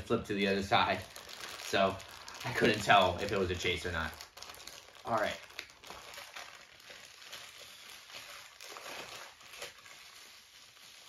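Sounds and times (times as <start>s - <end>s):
plastic bag crinkling: 0.4s - 11.0s.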